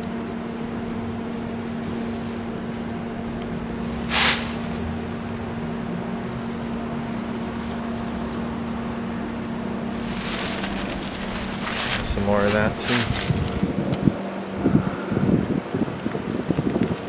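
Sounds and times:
steady machine hum: 0:00.0 - 0:16.6
short sharp hiss: 0:04.0 - 0:04.8.

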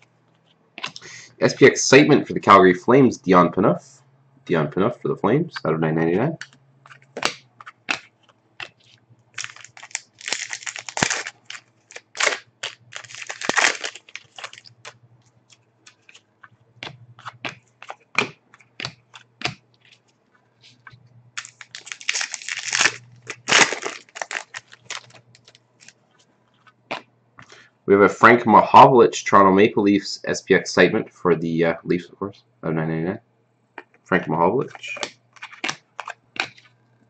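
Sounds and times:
cards shuffled by hand: 0:06.4 - 0:27.5, 0:34.6 - 0:36.8.

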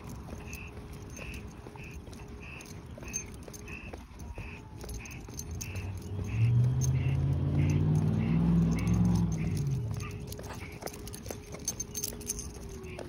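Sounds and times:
light regular ticking: 0:00.0 - 0:13.0
car engine passing: 0:05.1 - 0:12.1.

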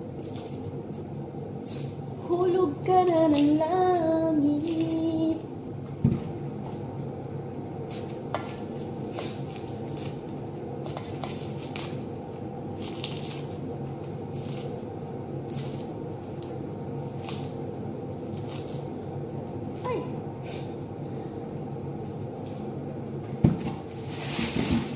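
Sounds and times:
onion skins crackling: 0:00.0 - 0:05.5, 0:07.8 - 0:20.6
steady low hum: 0:00.0 - 0:24.9.

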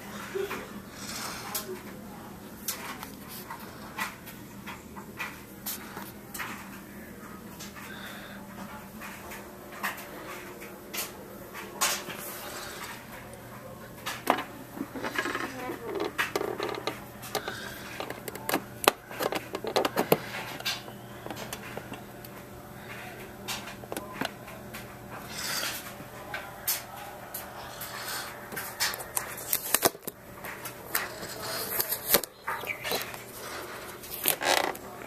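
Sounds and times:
steady low hum: 0:00.0 - 0:35.0
clicks and taps of handling: 0:14.0 - 0:24.9.

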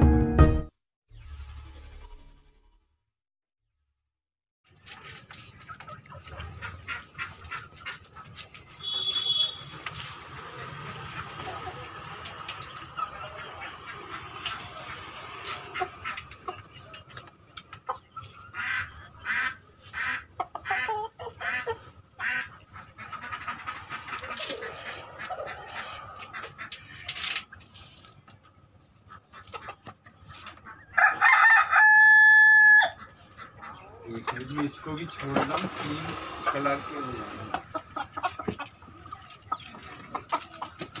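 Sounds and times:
chickens clucking: 0:04.8 - 0:08.8, 0:09.6 - 0:41.0
rooster crowing: 0:31.0 - 0:33.0.

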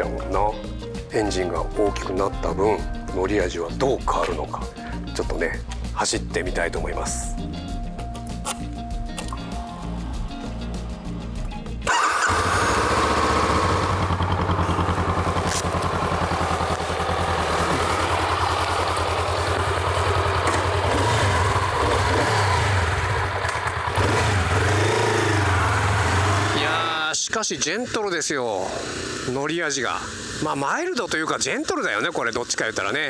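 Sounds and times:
motorcycle engine running: 0:09.7 - 0:33.0.

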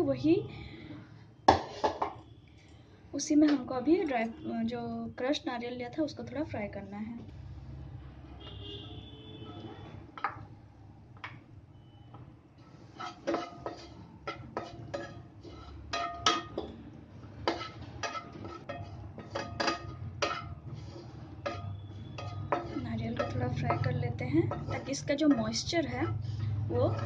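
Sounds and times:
wooden spatula scraping frying pan: 0:12.6 - 0:16.7, 0:17.3 - 0:27.0.

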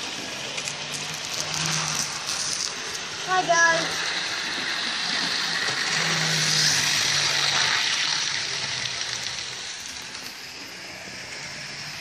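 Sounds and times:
model train motor whirring: 0:00.0 - 0:12.0
wheels hissing on rails: 0:00.0 - 0:12.0.

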